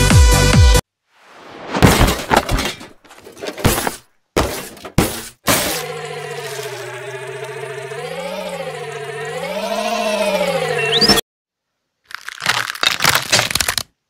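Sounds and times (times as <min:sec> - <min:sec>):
crashing shattering impacts: 0:01.7 - 0:05.8
wavering electronic hum: 0:05.8 - 0:11.2.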